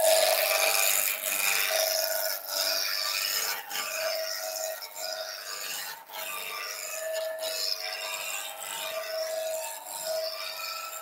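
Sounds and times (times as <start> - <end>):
wood lathe gouge cutting: 0.0 - 11.0.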